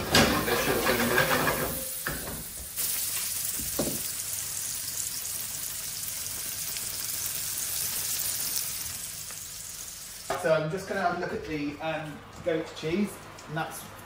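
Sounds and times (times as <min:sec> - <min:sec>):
mushrooms sizzling in a frying pan: 0:00.1 - 0:11.0.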